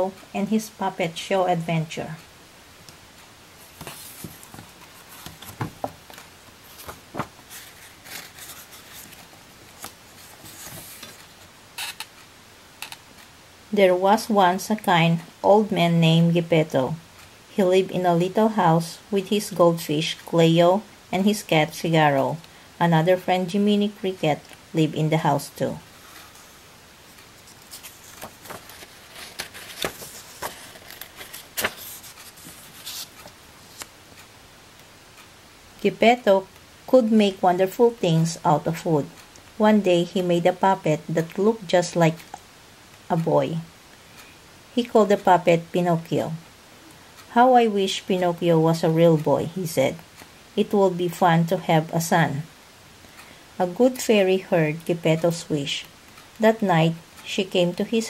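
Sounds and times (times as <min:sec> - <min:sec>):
book pages rustling: 0:03.6 - 0:11.4, 0:27.2 - 0:33.9.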